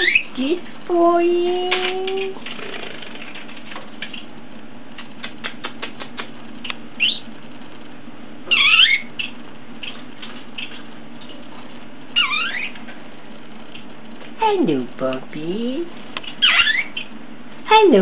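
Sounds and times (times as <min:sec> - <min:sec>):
budgerigar chirping: 0:00.0 - 0:00.3, 0:07.0 - 0:07.3, 0:08.5 - 0:10.0, 0:12.2 - 0:12.8, 0:16.4 - 0:17.1.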